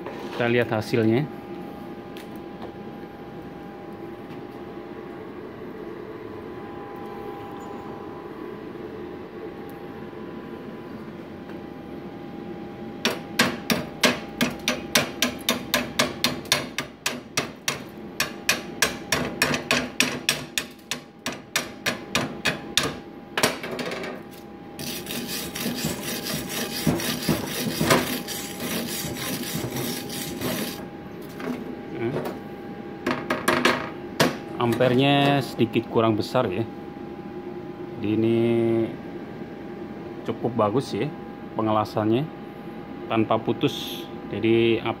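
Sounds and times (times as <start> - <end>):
scraping over weld: 24.8 - 30.8.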